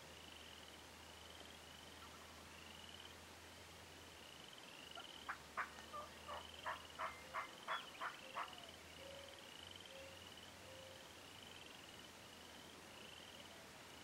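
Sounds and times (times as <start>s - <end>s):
turkey calling sharp notes: 5.3s - 8.7s.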